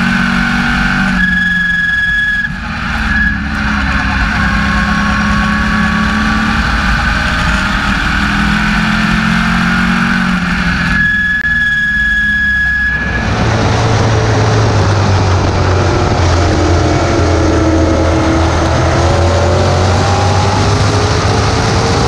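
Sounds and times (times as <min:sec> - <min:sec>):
race car engine running: 0:00.0 - 0:22.0
steady high whine: 0:00.0 - 0:22.0.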